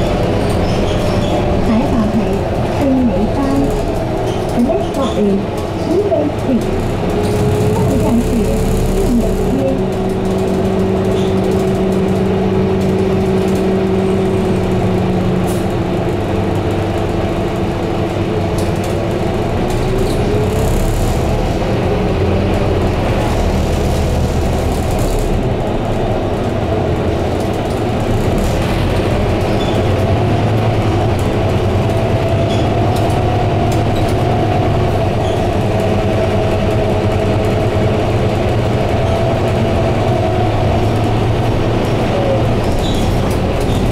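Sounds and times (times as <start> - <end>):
bus diesel engine drone: 0.0 - 43.9
drivetrain whine rising in pitch: 7.2 - 10.5.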